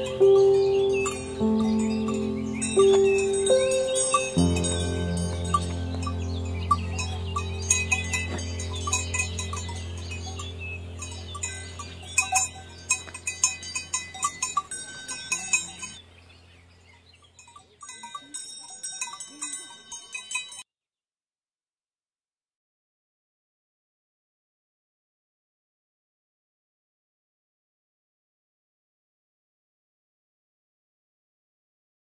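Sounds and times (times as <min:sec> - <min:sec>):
background music: 0:00.0 - 0:12.1
cowbells clanking: 0:00.0 - 0:16.1, 0:17.0 - 0:20.6.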